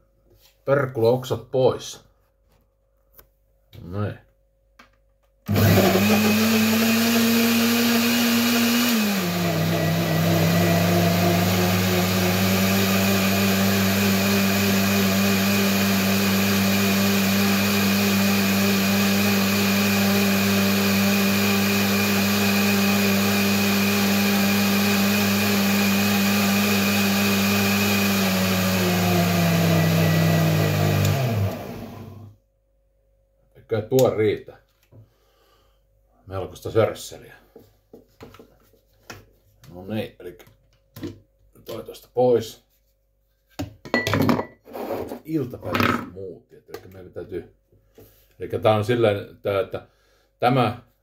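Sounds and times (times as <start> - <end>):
blender motor running: 5.5 - 32.3.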